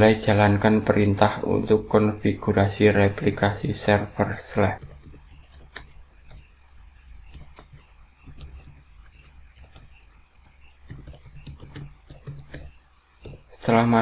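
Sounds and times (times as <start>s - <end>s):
computer keyboard key clicks: 7.3s - 13.5s.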